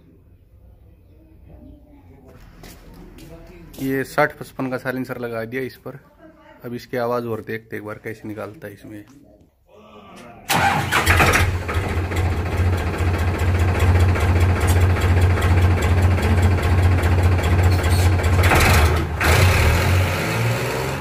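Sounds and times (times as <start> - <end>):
tractor diesel engine running: 10.5 - 21.0.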